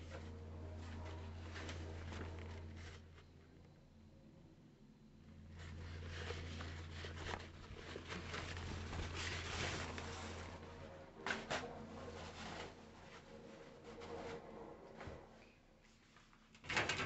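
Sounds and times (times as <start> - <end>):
handling noise rustling: 0.0 - 3.3, 5.5 - 10.8
low hum: 0.0 - 15.8.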